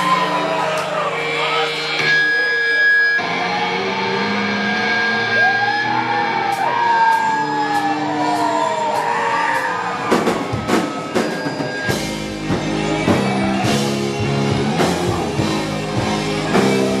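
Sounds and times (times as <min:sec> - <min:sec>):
electric guitar feedback: 0:00.0 - 0:17.0.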